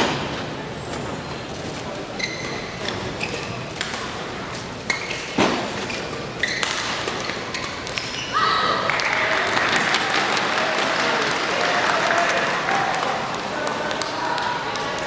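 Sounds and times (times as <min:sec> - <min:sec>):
shoes squeaking on court: 0:00.8 - 0:08.4.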